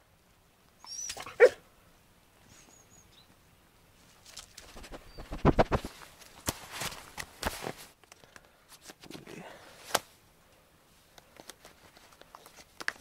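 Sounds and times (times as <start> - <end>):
dog barking: 1.2 - 1.6
clothing and belt rustling: 11.3 - 13.0.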